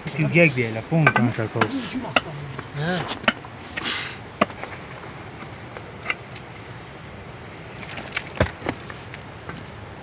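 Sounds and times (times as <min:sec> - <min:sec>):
rock knocks: 0:04.4 - 0:04.7, 0:08.0 - 0:09.6.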